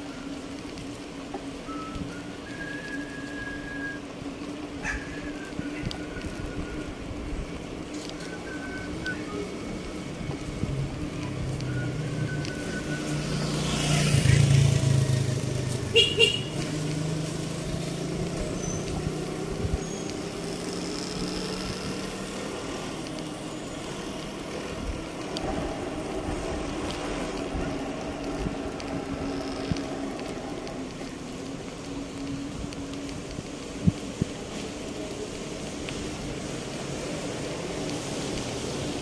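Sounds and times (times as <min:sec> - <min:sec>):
street traffic hum: 0:00.0 - 0:39.0
vehicle passing close: 0:10.0 - 0:39.0.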